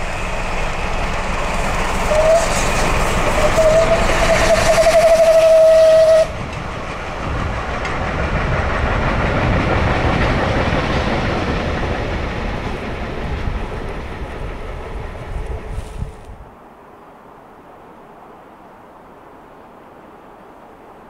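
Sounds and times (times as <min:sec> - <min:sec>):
train wagons rolling over rails: 0:00.0 - 0:16.0
steam locomotive whistle: 0:01.9 - 0:06.4.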